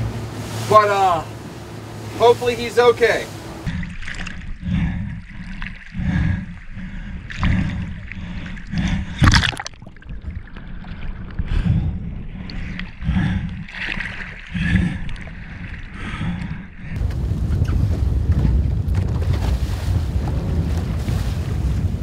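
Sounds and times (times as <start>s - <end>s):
seawater sloshing and splashing: 0.0s - 22.0s
steady water rushing: 0.0s - 22.0s
loud water splash: 9.2s - 10.4s.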